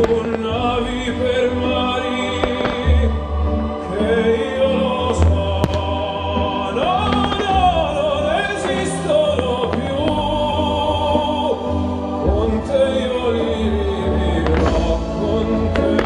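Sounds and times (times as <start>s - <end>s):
firework cracks: 0.0s - 3.9s, 5.1s - 10.8s, 14.4s - 16.0s
operatic singing: 0.0s - 16.0s
orchestral music: 0.0s - 16.0s.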